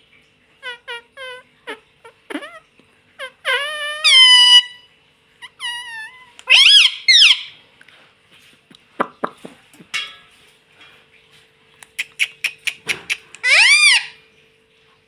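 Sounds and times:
parakeet squawking: 0.6s - 2.6s, 3.2s - 7.6s, 12.0s - 14.2s.

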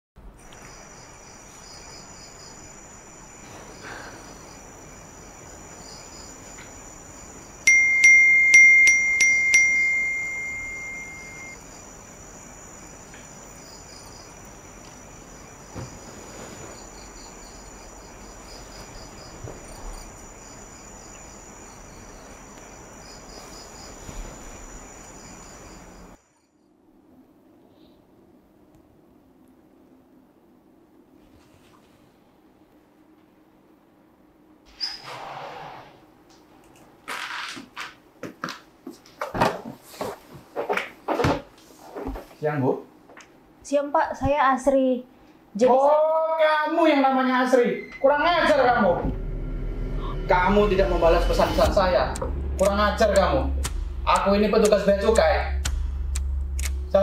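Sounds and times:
crickets chirping: 0.2s - 28.0s, 43.4s - 57.0s
phone notification chimes: 7.7s - 11.6s.

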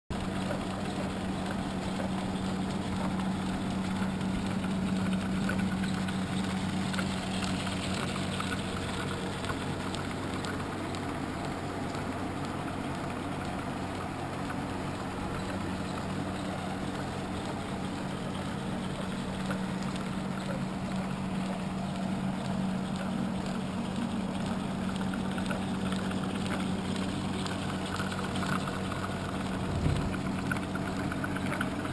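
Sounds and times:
grinding wheels humming and whirring: 0.1s - 31.9s.

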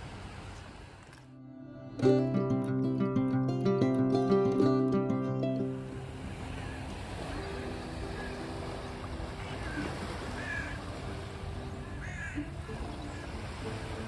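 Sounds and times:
guitar music: 1.3s - 6.3s
small waves lapping: 4.1s - 14.0s
bird calls: 6.5s - 13.6s.

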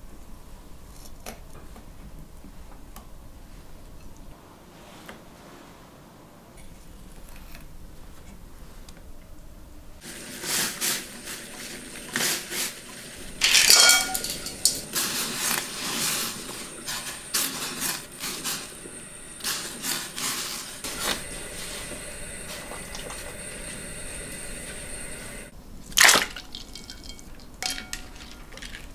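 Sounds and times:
water boiling in a saucepan: 10.0s - 28.9s
utensil clinking against pot: 10.5s - 21.2s, 26.6s - 28.9s
metallic clatter: 13.4s - 18.4s.

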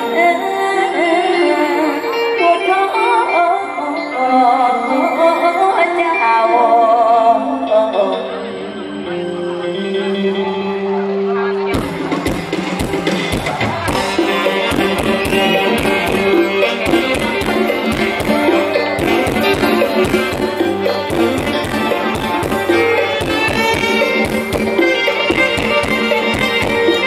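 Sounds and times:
live folk band music: 0.0s - 27.0s
steady drum beat: 11.8s - 27.0s.

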